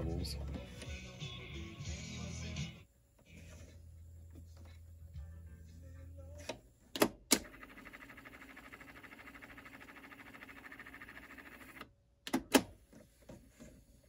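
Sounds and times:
music from tape: 0.0s - 8.7s
tape winding whir: 6.3s - 11.9s.

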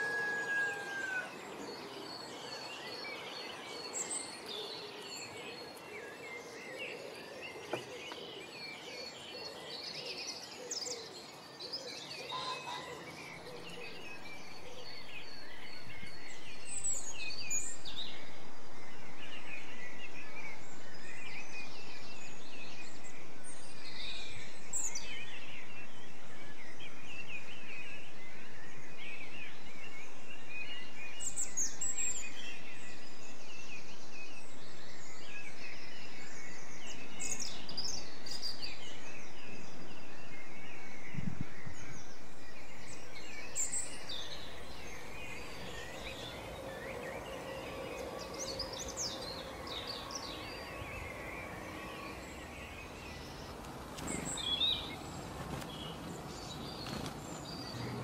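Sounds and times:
finches twittering and chirping: 1.0s - 58.0s
steady background hiss: 13.0s - 58.0s.

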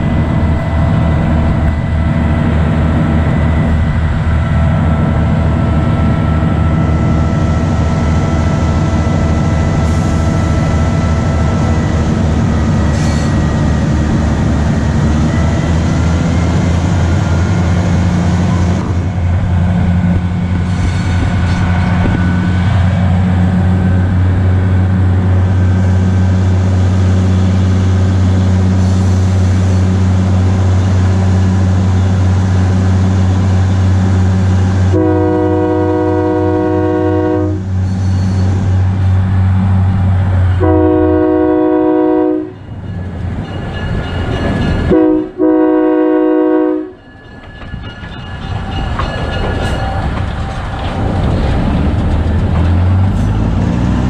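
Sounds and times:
diesel locomotive engine droning: 0.0s - 54.0s
locomotive horn blasts: 34.9s - 37.8s, 40.6s - 42.6s, 44.9s - 47.0s.

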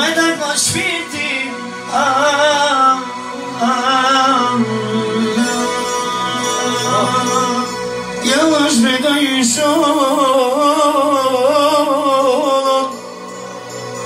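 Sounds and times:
man singing into a microphone: 0.0s - 13.3s
electronic keyboard accompaniment: 0.0s - 14.0s.

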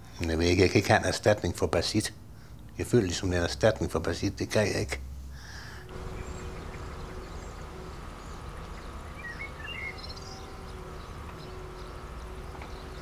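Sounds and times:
low rumble of background noise: 0.0s - 13.0s
faint bird chirps: 5.9s - 13.0s.

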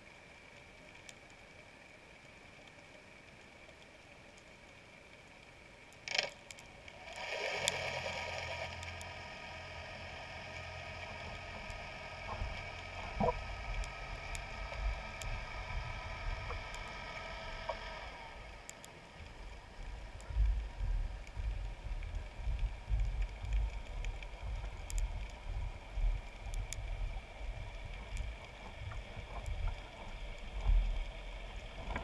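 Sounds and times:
underwater boat motor whine: 6.9s - 32.0s
low rumble: 8.3s - 32.0s.

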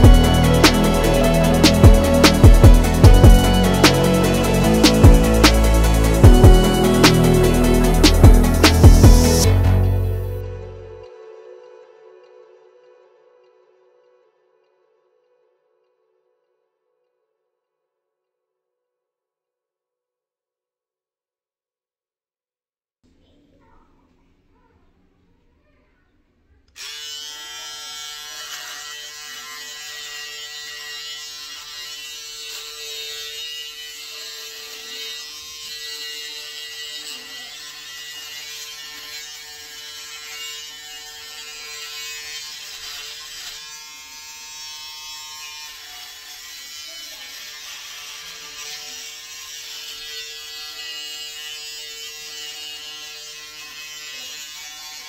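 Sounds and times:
electric shaver buzzing: 0.0s - 10.9s, 26.7s - 55.0s.

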